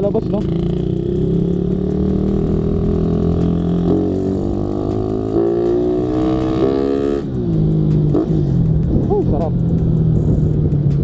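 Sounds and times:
motorcycle engine running: 0.0s - 11.0s.

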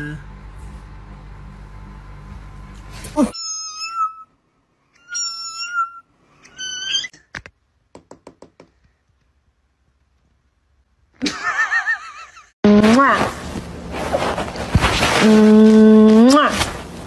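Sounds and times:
cat meowing: 3.3s - 4.3s, 5.0s - 7.1s.

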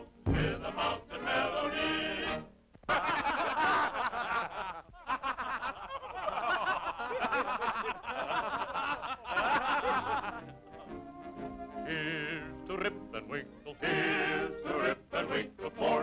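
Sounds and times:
music: 0.0s - 2.6s, 9.6s - 16.0s.

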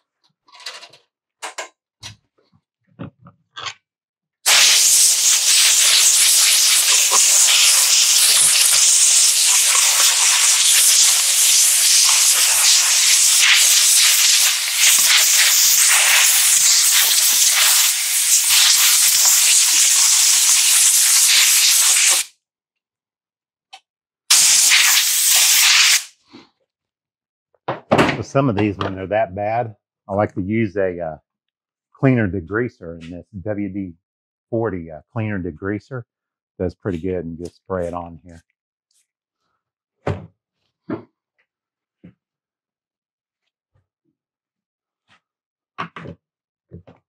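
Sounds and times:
air blow gun hissing: 4.5s - 22.3s, 24.3s - 26.2s.

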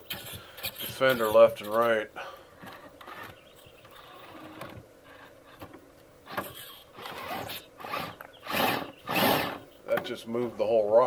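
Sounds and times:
electric motor whirring: 6.2s - 9.6s.

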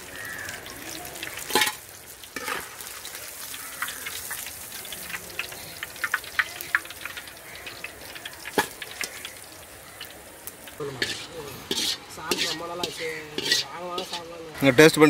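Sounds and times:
fish deep-frying in hot oil: 0.0s - 15.0s
metal ladle knocking on pan: 1.6s - 1.8s, 8.4s - 9.1s.

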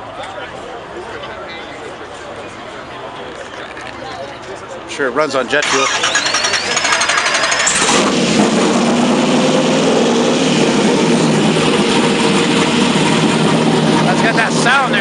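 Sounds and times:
starter motor whine: 5.6s - 8.4s
car engine idling: 5.6s - 15.0s.

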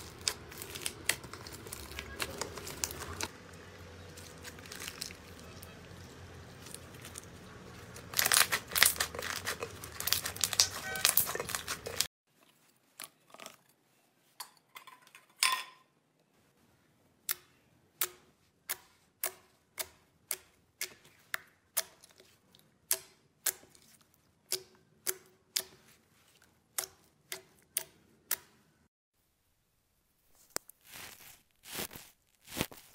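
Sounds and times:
slime crackling while stretched: 0.0s - 12.1s, 30.4s - 32.9s.

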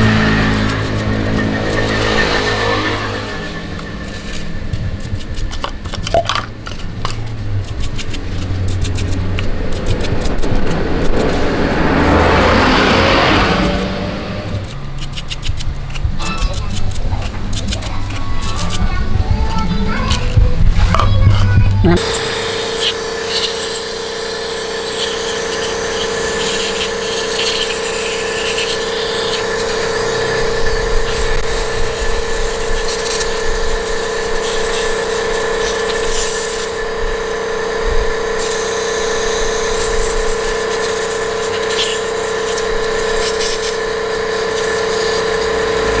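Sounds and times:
spray nozzle hissing: 0.0s - 12.4s, 21.9s - 46.0s
steady hum: 0.0s - 46.0s.

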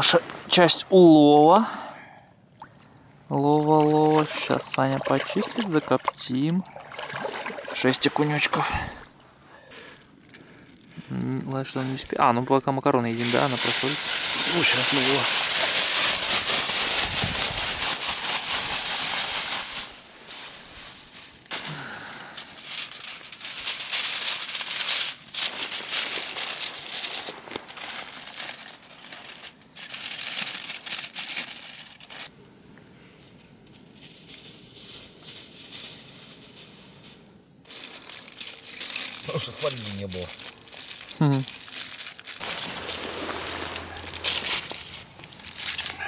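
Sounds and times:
aluminium foil crumpling: 9.5s - 12.1s, 13.0s - 32.3s, 33.2s - 46.0s.

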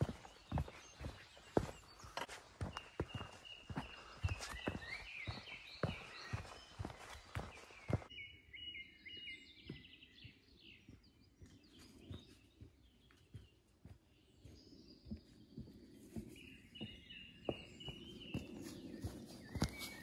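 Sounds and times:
footsteps on leaves: 0.0s - 8.1s, 18.4s - 20.0s
small birds chirping: 0.0s - 20.0s.

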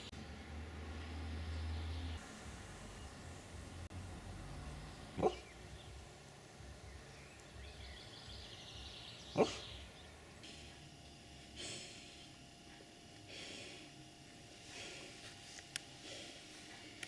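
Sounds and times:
puppy snort: 9.3s - 9.8s.

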